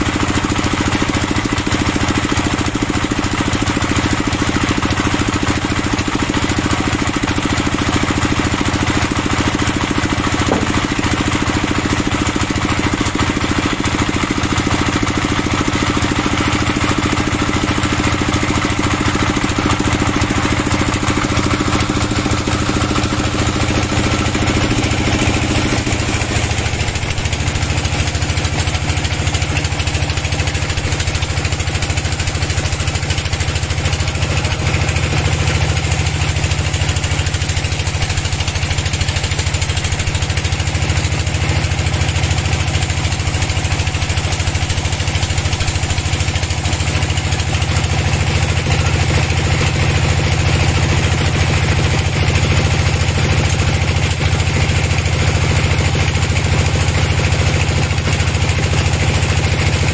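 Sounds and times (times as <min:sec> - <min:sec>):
engine idling: 0:00.0 - 0:59.9.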